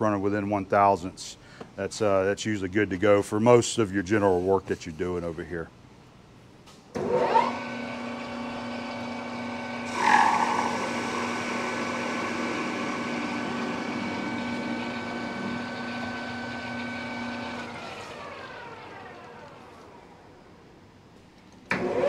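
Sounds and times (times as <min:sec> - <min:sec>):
metal lathe whine: 0:07.0 - 0:20.4.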